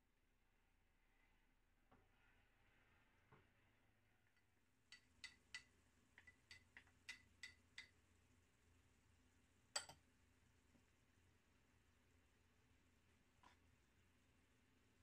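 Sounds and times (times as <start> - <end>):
wooden spoon tapping glass bowl: 4.9 - 8.0, 9.8 - 10.0.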